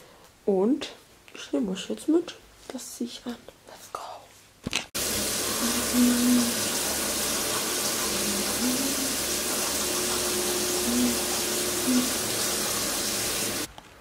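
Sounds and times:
tap water running into sink: 0:05.0 - 0:13.7.

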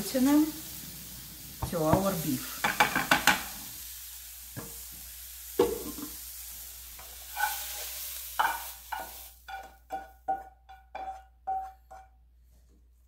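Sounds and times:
mushrooms sizzling: 0:00.0 - 0:11.2
spatula scraping metal pan: 0:07.2 - 0:12.2
spatula tapping ringing pan: 0:08.4 - 0:12.2.

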